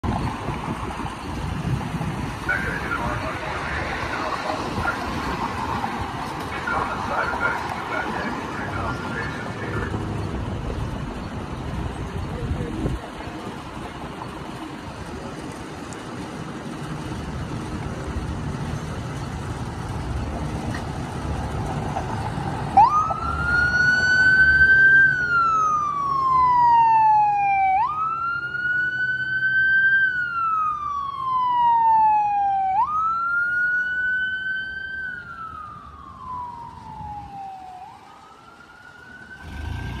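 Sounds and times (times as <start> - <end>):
traffic and engine rumble: 0.0 - 40.0
ambulance siren wailing: 2.4 - 10.3, 22.4 - 40.0.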